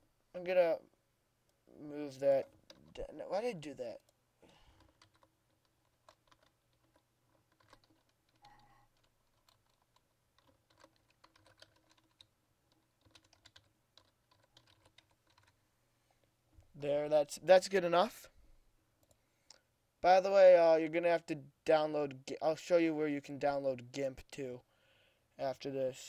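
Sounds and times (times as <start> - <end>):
faint keyboard typing: 2.4 - 3.2, 3.8 - 15.6, 19.0 - 19.7.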